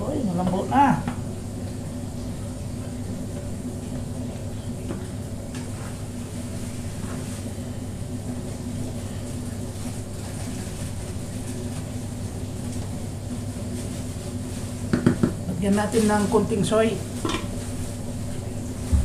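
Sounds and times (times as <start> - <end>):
steady low hum: 0.0 - 19.0.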